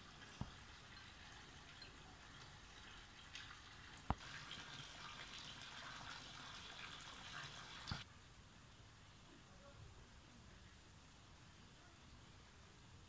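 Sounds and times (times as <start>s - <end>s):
light rain pattering: 0.0s - 13.0s.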